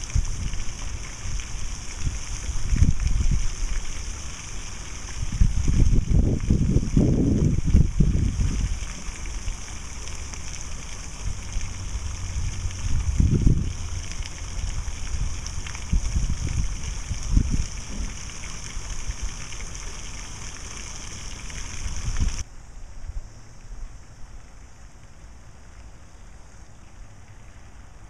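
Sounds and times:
wind buffeting microphone: 0.0s - 22.4s
steady high hiss: 0.0s - 28.0s.

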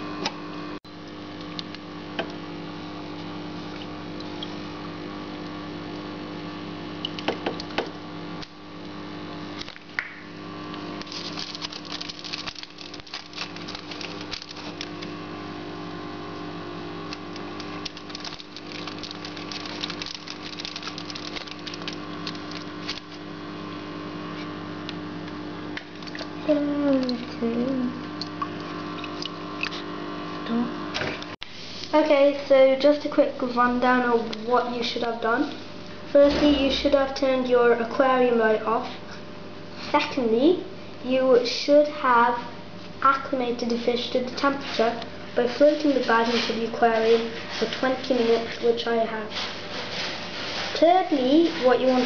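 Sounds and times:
clicks and crinkling handling noise: 10.7s - 15.2s, 17.0s - 23.3s, 24.4s - 29.9s.

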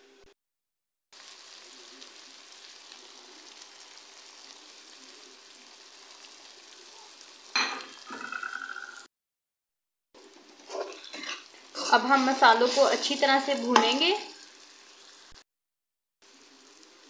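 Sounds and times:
spices sizzling in hot oil: 1.1s - 9.1s, 10.2s - 15.4s, 16.2s - 17.0s
steel spoon scraping a pan: 7.6s - 9.0s, 10.6s - 14.4s.

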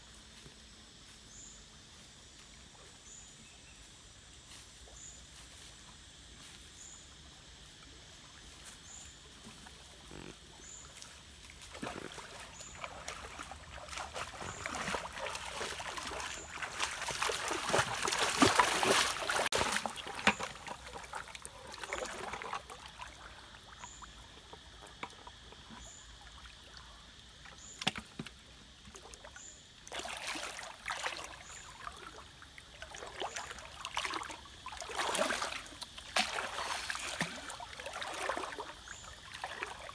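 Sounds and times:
feet splashing through stream: 9.2s - 24.8s, 29.9s - 39.9s.

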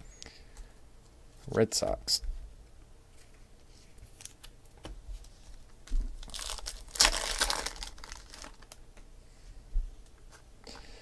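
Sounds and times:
wrapper tearing and crinkling: 6.2s - 8.8s.

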